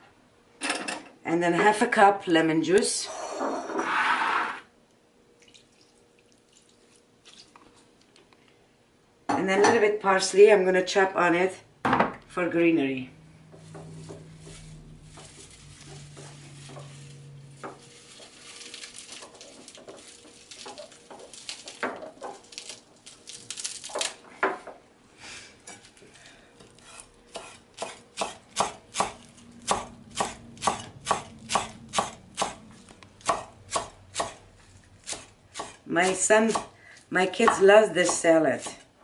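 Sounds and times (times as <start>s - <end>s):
parsley leaves rustling: 13.6s - 24.2s
knife chopping on wooden board: 27.3s - 32.6s, 33.2s - 34.4s, 35.0s - 36.7s.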